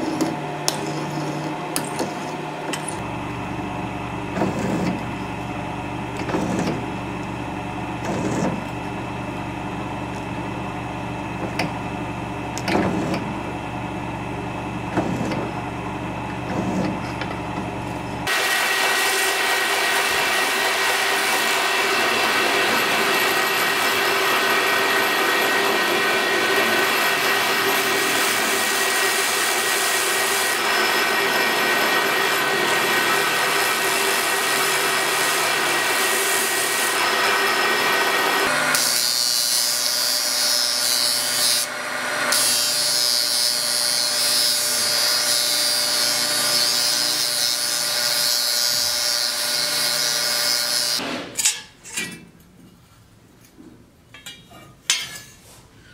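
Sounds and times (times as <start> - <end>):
belt grinder grinding blade: 0.0 - 3.0, 4.3 - 5.5, 6.1 - 7.3, 8.0 - 9.0, 12.5 - 13.4, 14.8 - 51.6
cutter scraping metal: 0.0 - 3.0, 4.3 - 5.4, 6.1 - 7.2, 8.0 - 8.9, 12.6 - 13.4, 14.8 - 52.2
drill press humming: 0.0 - 42.9.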